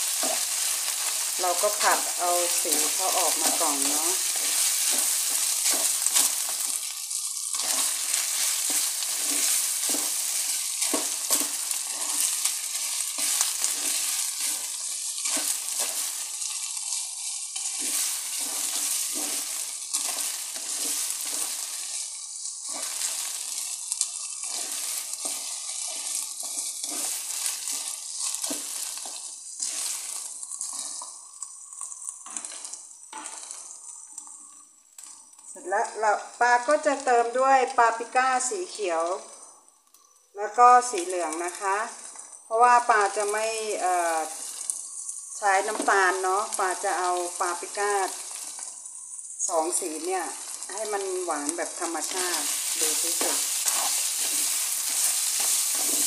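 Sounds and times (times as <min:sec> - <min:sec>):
wooden spatula scraping a pan: 0:00.0 - 0:35.1, 0:49.8 - 0:56.0
meat sizzling in a frying pan: 0:00.0 - 0:56.0.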